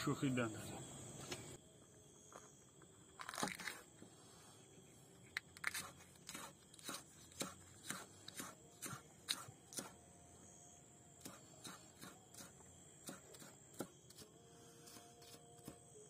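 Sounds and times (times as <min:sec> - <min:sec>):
knife chopping peppers on wood: 0:05.7 - 0:10.0, 0:11.1 - 0:16.0.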